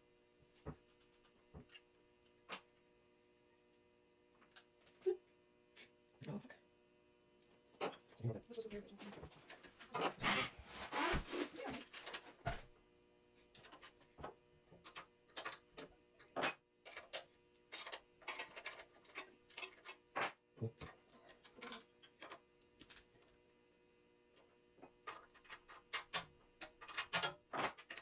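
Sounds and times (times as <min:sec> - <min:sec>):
metal parts clicking and clinking: 0:14.8 - 0:20.3, 0:21.3 - 0:23.0, 0:25.0 - 0:28.0.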